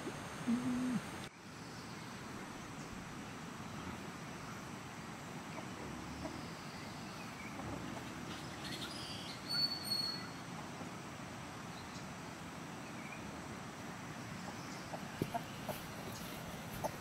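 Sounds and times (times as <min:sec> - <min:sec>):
bird chirps: 0:08.3 - 0:10.4.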